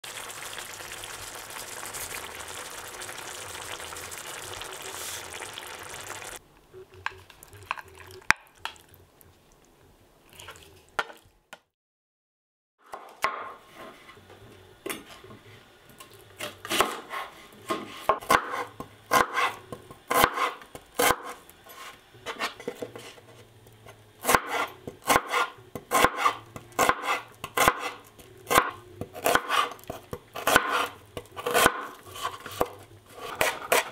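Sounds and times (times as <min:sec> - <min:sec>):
food sizzling in a pan: 0:00.0 - 0:06.4
knife chopping on cutting board: 0:16.4 - 0:21.4, 0:24.2 - 0:33.9.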